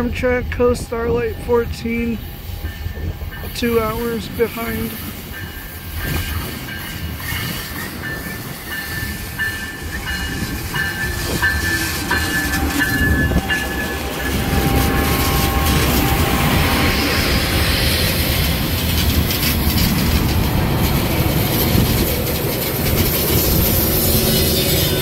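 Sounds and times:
train wheels on rails: 0:00.0 - 0:25.0
locomotive engine: 0:01.4 - 0:25.0
high ringing tone: 0:04.6 - 0:16.0.

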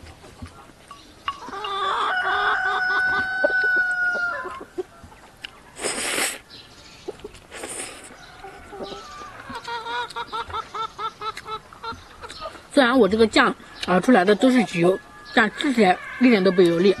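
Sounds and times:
rooster crowing: 0:01.4 - 0:04.8, 0:08.1 - 0:09.7
noodles slurped: 0:05.8 - 0:06.4, 0:07.4 - 0:08.2.

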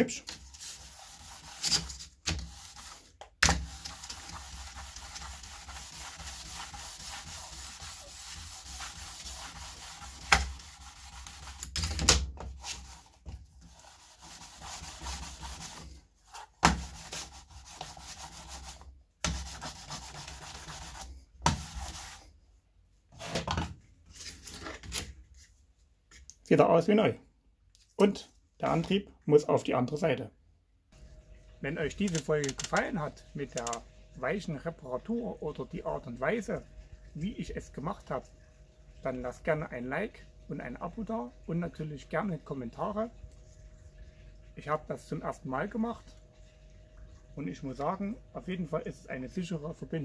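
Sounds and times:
sponge rubbing on metal rails: 0:00.2 - 0:11.8, 0:12.5 - 0:22.3.

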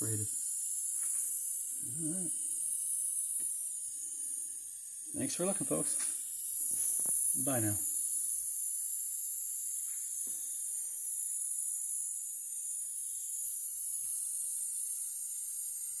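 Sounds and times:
high-pitched steam hiss: 0:00.0 - 0:16.0.

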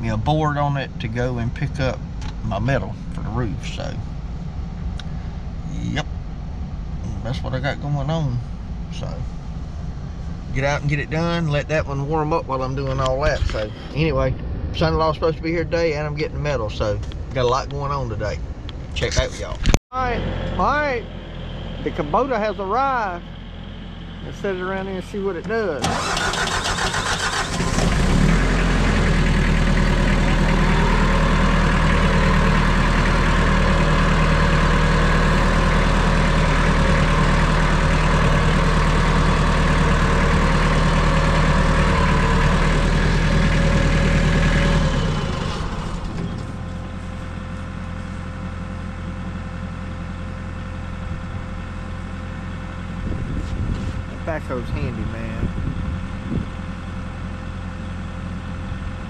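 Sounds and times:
tractor engine running: 0:19.4 - 0:59.0.

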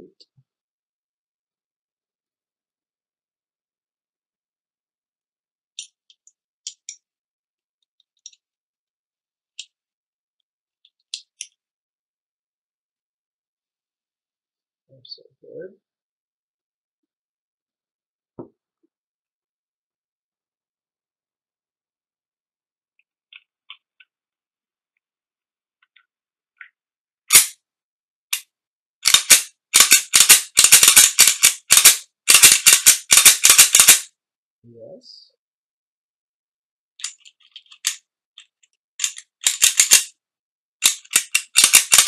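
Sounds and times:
pistol parts clicking: 0:05.8 - 0:07.0, 0:08.0 - 0:08.4, 0:27.3 - 0:27.6, 0:28.3 - 0:34.1, 0:37.0 - 0:40.2, 0:40.8 - 0:42.0
pistol clicks: 0:39.0 - 0:40.1.

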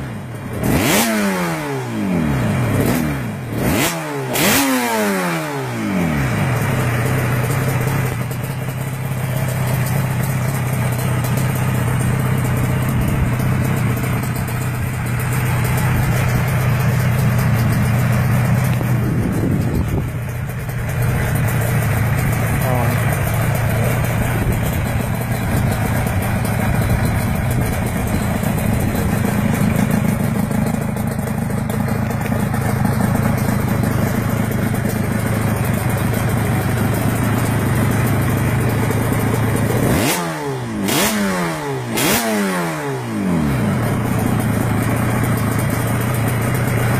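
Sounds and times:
motorcycle engine idling: 0:00.0 - 0:46.9
motorcycle throttle blips: 0:06.3 - 0:42.2.

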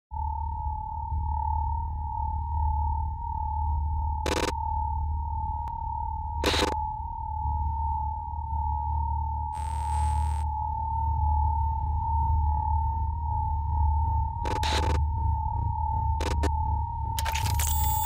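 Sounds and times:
low throbbing hum: 0:00.2 - 0:18.0
steady electronic tone: 0:09.5 - 0:10.5, 0:17.2 - 0:18.0.

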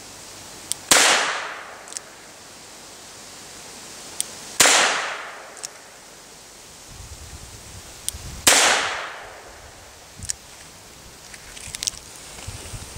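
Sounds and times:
pistol shots echoing: 0:00.9 - 0:01.9, 0:04.6 - 0:05.6, 0:08.5 - 0:09.5.

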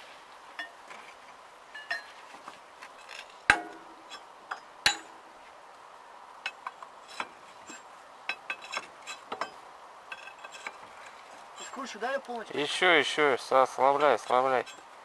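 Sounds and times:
metal tools clinking on metal: 0:01.8 - 0:02.2, 0:06.5 - 0:10.8, 0:11.5 - 0:12.0, 0:14.0 - 0:14.9.

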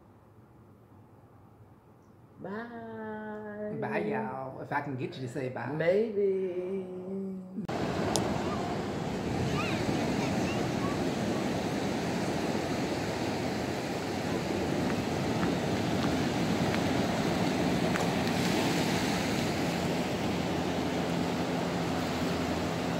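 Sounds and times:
ocean waves breaking on beach: 0:07.7 - 0:22.9.

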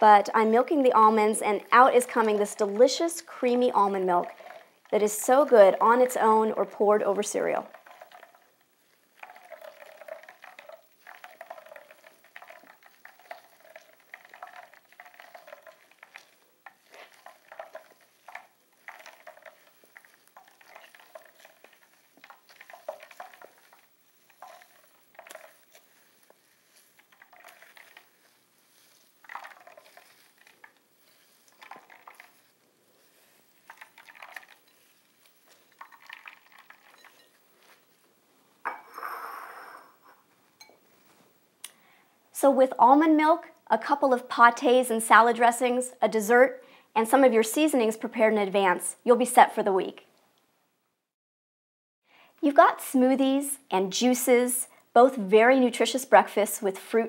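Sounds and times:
liquid running into bowl: 0:00.7 - 0:38.1
wet squelching of squeezed bag: 0:07.6 - 0:38.0.

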